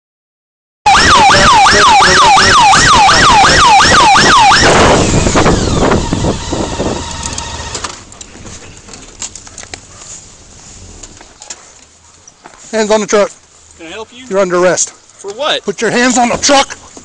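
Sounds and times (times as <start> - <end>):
motorcycle siren yelping: 0.9 - 7.9
road and engine noise: 0.9 - 17.0.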